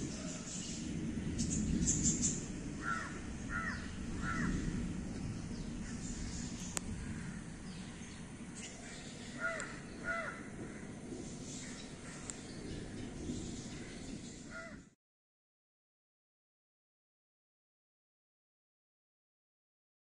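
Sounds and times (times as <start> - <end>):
steady low background noise: 0.0 - 15.0
bird calling: 1.4 - 4.6, 5.2 - 14.9.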